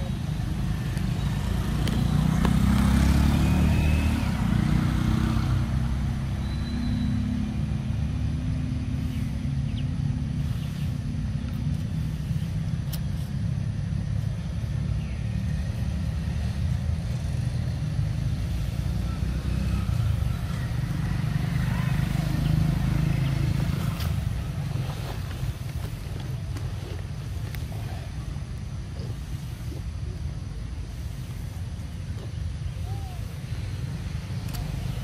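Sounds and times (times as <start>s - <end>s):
vehicle engine passing: 0.0s - 28.2s
steady low rumble: 7.4s - 19.1s.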